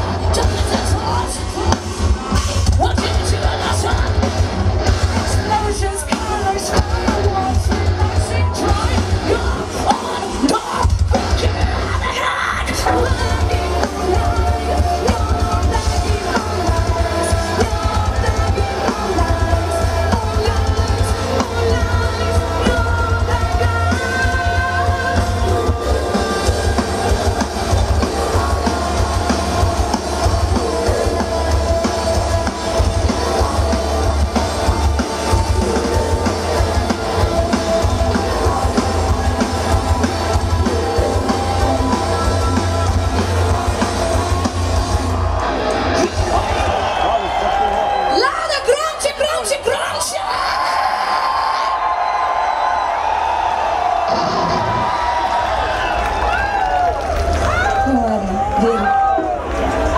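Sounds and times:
person singing: 0.0s - 4.4s, 5.1s - 44.7s
metal band playing live: 0.0s - 59.9s
heavy bass drum pulse: 12.9s - 47.0s.

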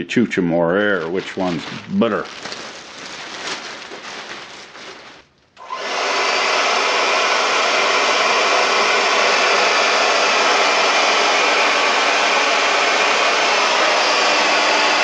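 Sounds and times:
plastic bin liner rustling: 0.7s - 5.6s
hair dryer blowing: 5.6s - 15.0s.

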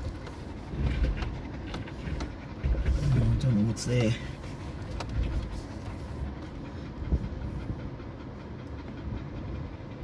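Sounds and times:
vehicle rolling over loose rocks: 0.0s - 3.7s.

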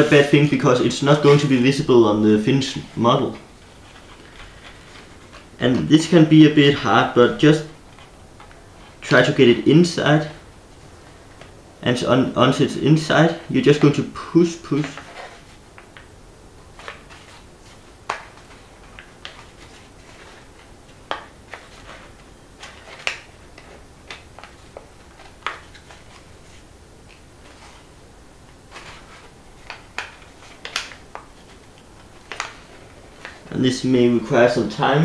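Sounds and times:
paper crackling and rustling: 0.0s - 5.6s, 13.7s - 34.2s.

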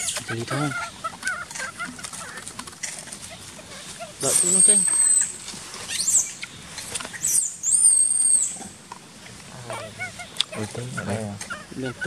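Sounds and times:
baby monkey screaming: 0.0s - 2.4s, 3.2s - 5.3s, 7.1s - 8.7s, 9.6s - 12.0s.

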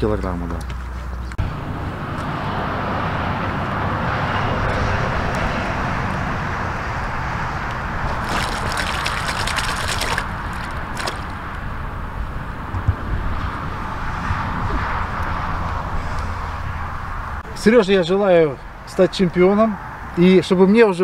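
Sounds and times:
fish splashing in water: 8.0s - 11.6s
water sloshing and trickling: 8.0s - 11.8s.

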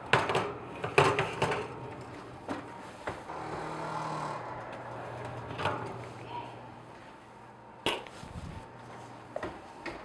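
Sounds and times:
metal pans and racks clattering: 0.0s - 3.3s, 4.6s - 6.4s.

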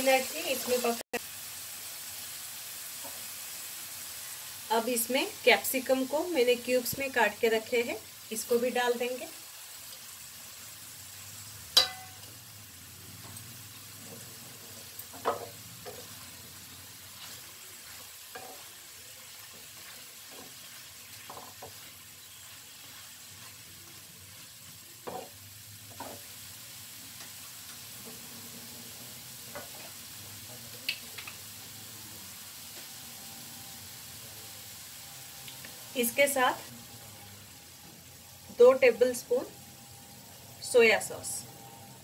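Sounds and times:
vegetables faintly sizzling in pan: 0.0s - 42.0s
spatula scraping pan: 17.0s - 25.3s.

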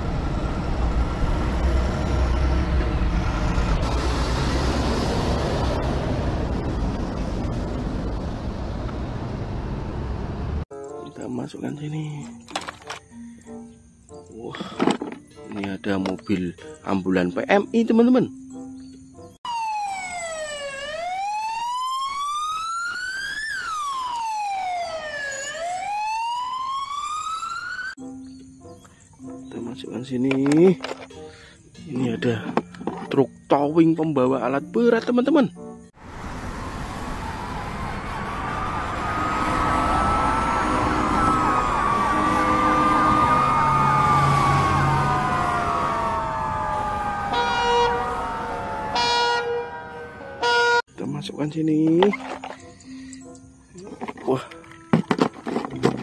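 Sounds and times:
ambulance siren wailing: 0.0s - 6.7s, 19.4s - 28.0s, 36.1s - 50.9s
truck diesel engine passing: 0.0s - 10.6s, 36.0s - 50.8s
tyre and road noise: 0.0s - 10.7s, 36.0s - 50.8s, 53.8s - 56.0s.

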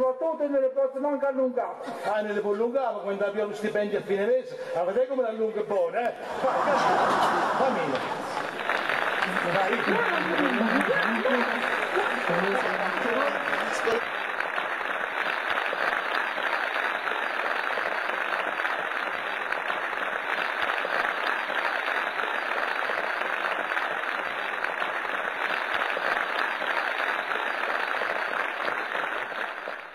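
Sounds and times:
audience applauding: 6.1s - 29.9s.

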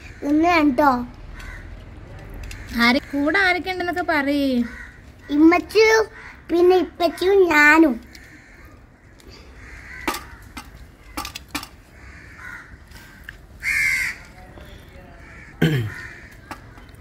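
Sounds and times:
harsh caw: 0.0s - 0.6s, 1.4s - 1.7s, 4.6s - 6.5s, 8.1s - 14.3s, 15.1s - 16.9s.

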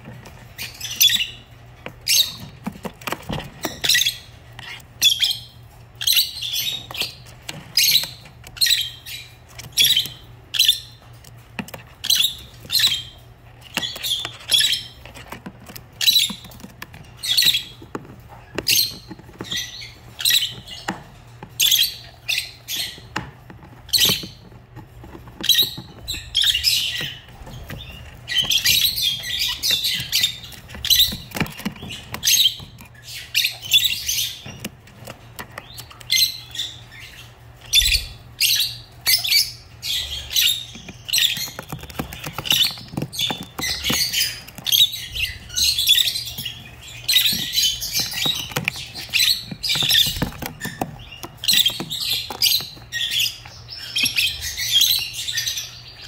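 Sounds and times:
lovebirds chirping: 0.0s - 56.0s.

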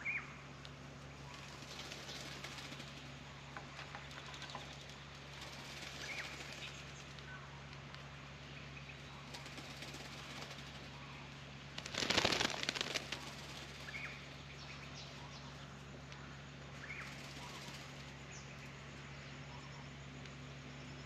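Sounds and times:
bird splashing and flapping wings: 1.4s - 7.1s, 9.3s - 11.0s, 11.7s - 14.2s, 17.0s - 18.1s.

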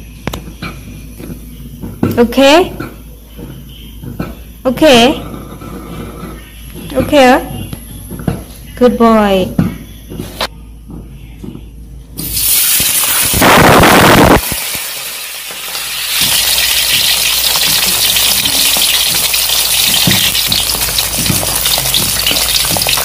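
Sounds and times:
fish sizzling in hot oil: 12.2s - 23.0s.

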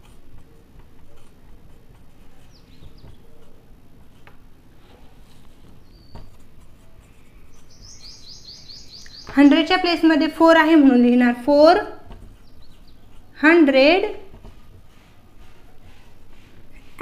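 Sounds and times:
marker squeaking on whiteboard: 0.0s - 9.6s, 11.9s - 17.0s
bird chirping: 2.3s - 3.5s, 5.8s - 6.5s, 7.1s - 10.1s, 12.4s - 13.3s.

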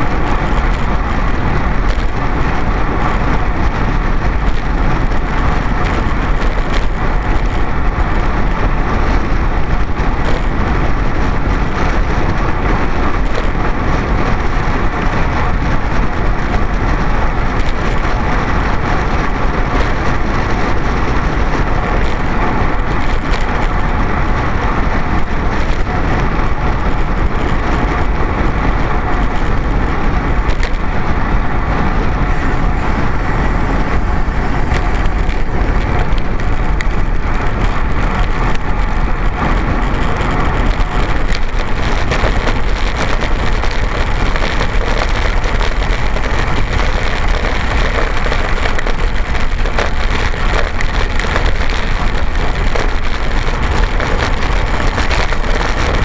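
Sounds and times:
wind and road noise: 0.0s - 56.0s.

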